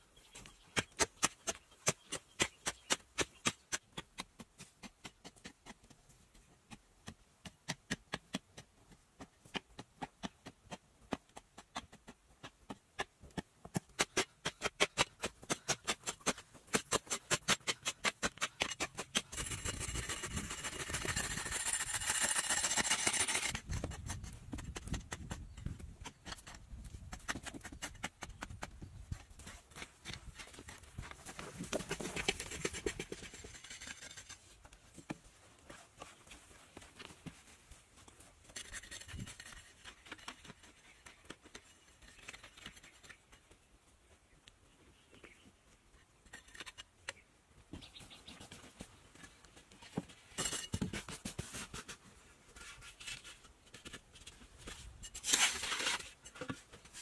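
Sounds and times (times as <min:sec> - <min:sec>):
hoe chopping dirt: 0:00.4 - 0:34.4
scraping soil: 0:09.2 - 0:34.8, 0:35.6 - 0:43.5, 0:46.1 - 0:46.9, 0:49.9 - 0:57.0.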